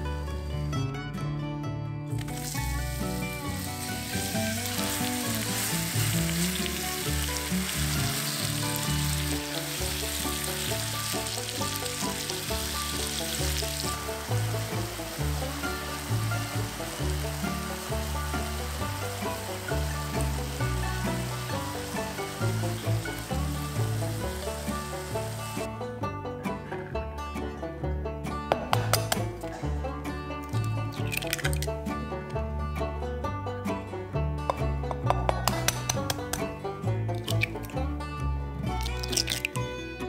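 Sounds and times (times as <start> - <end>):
bananas sizzling in a pan: 2.3 - 25.7.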